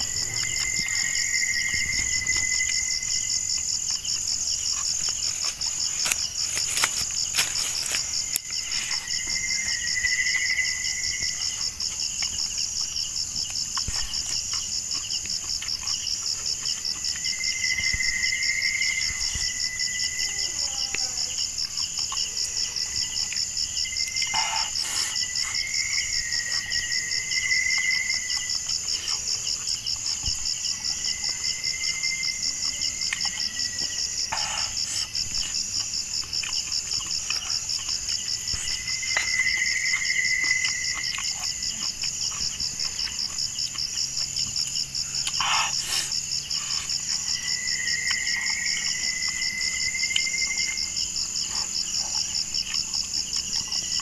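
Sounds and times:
lower insect trilling call: 0.0s - 11.8s, 17.1s - 21.3s, 22.7s - 29.6s, 38.3s - 41.7s, 47.1s - 50.8s
crickets trilling: 0.0s - 54.0s.

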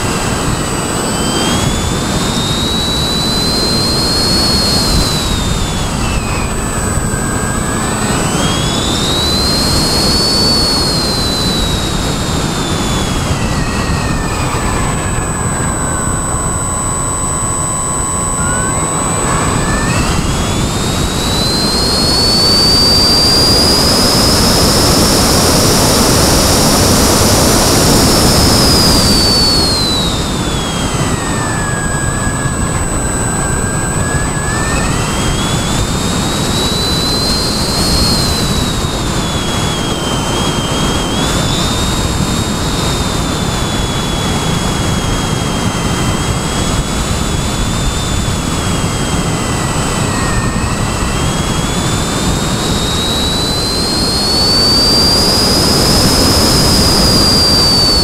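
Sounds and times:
model airplane motor whining: 0.0s - 58.0s
wind rush on microphone: 0.0s - 58.0s.

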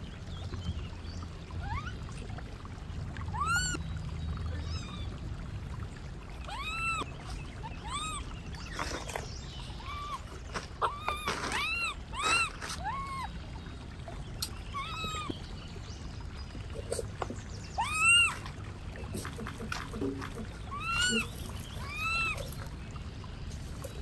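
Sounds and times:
low steady hum: 0.0s - 24.0s
monkeys high-pitched calls: 1.6s - 2.1s, 3.3s - 3.8s, 6.4s - 8.4s, 9.7s - 13.4s, 14.5s - 15.4s, 17.8s - 18.5s, 19.2s - 22.7s.

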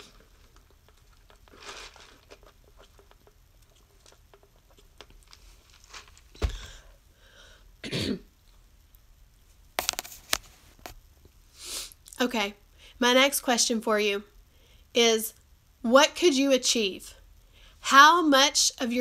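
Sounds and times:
woman clearing her throat: 7.8s - 8.3s.

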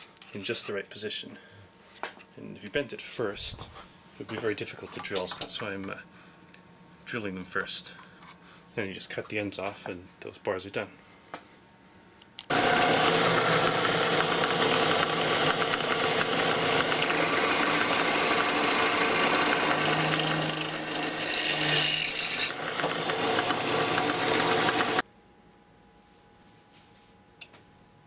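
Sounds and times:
drill press cutting metal: 12.5s - 25.0s
motor humming: 12.5s - 25.0s.

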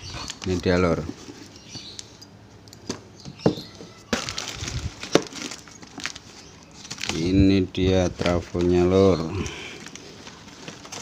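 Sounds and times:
cardboard and paper rustling: 0.2s - 1.6s, 3.8s - 11.0s.

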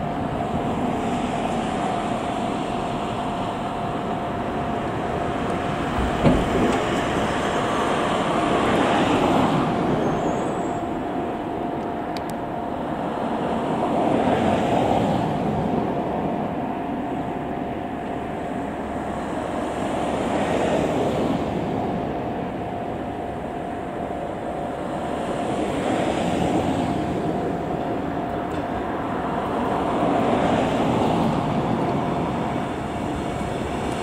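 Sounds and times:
electric train rolling: 0.0s - 34.0s.

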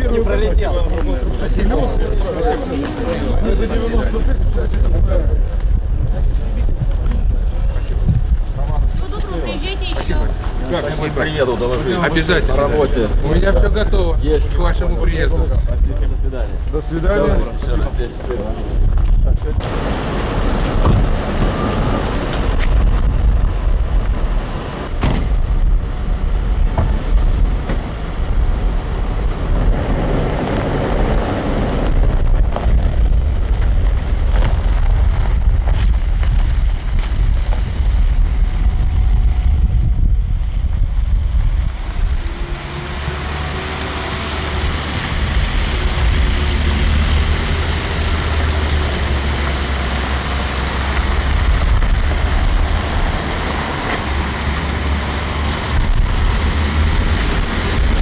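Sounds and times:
vehicle engines rumbling: 0.0s - 58.0s
tyre hiss on wet road: 41.6s - 58.0s.

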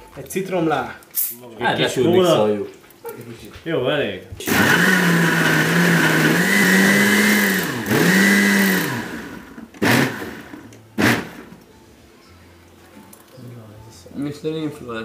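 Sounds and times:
blender motor running: 4.4s - 11.5s.

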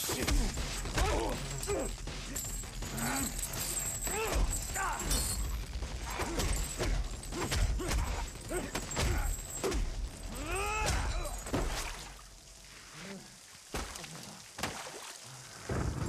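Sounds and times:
fighters grunting and crying: 0.0s - 11.5s
punches and body blows: 0.0s - 12.2s, 13.7s - 14.9s
heavy rain hiss: 0.0s - 16.0s.

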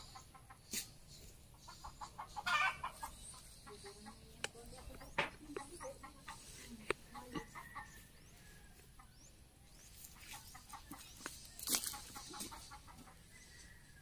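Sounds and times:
chickens clucking: 0.0s - 14.0s.

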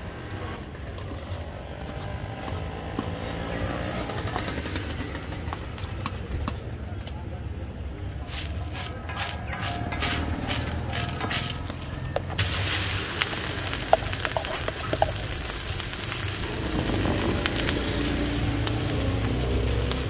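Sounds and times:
egg sizzling on griddle: 8.3s - 20.0s.

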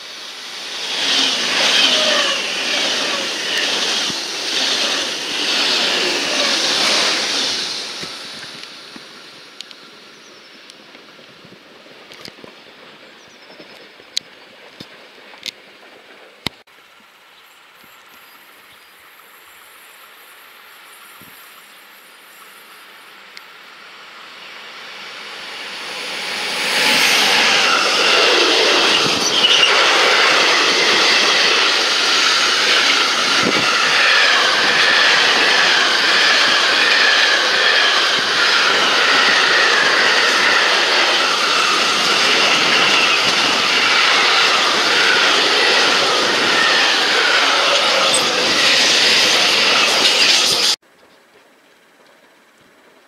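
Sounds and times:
freight train rolling past: 0.0s - 10.6s, 23.7s - 50.8s.

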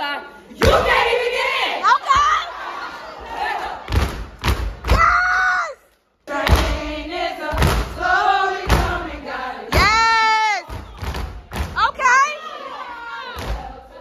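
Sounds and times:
voices chanting together: 0.2s - 5.0s, 6.2s - 14.0s.

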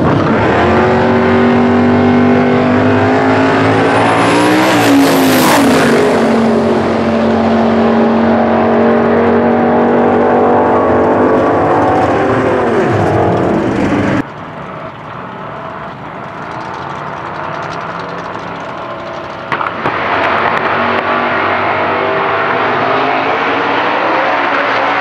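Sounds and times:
drag car engines at full throttle: 0.0s - 25.0s
engine running steadily: 6.2s - 22.7s.

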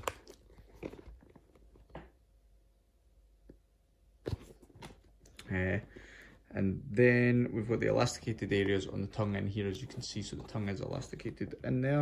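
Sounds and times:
shoe handling rustles: 7.6s - 11.4s.

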